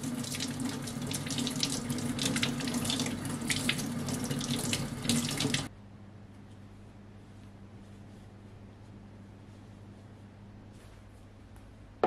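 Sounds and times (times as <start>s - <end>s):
tap water splashing into sink: 0.0s - 5.7s.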